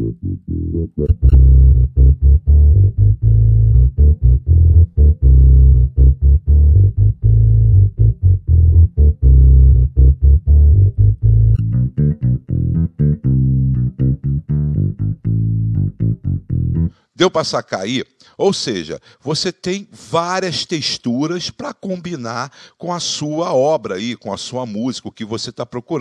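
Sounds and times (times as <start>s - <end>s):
electric bass line: 0.0s - 17.0s.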